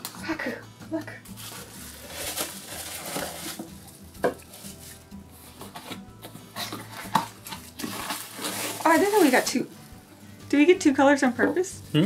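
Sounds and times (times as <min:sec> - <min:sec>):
bubble wrap crinkling: 0:01.3 - 0:06.0, 0:06.6 - 0:09.7.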